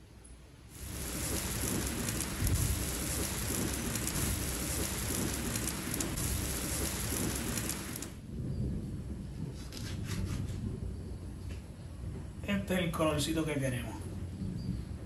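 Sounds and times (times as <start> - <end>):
bread sizzling on a griddle: 0.7 - 8.2.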